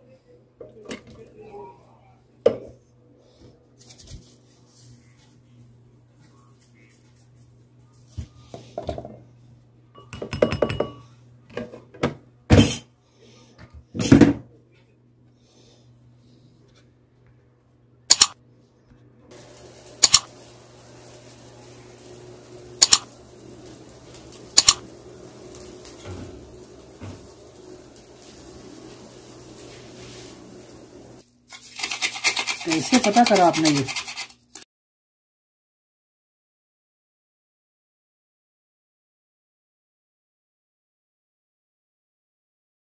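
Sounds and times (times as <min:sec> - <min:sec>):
dishes and utensils clattering: 0:10.0 - 0:11.8.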